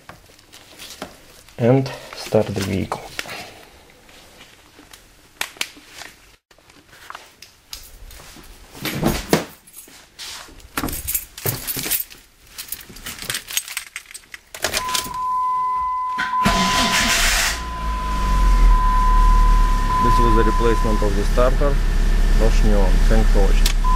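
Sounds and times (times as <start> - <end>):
handling clicks and knocks: 10.8 - 15.2
keys jangling: 10.8 - 15.2
high car warning beep: 14.8 - 22.4.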